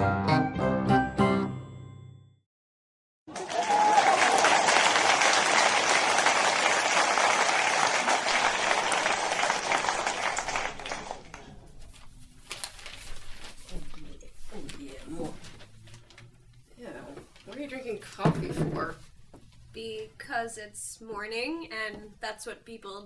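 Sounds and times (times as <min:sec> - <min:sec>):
audience applause: 0:03.3 - 0:11.6.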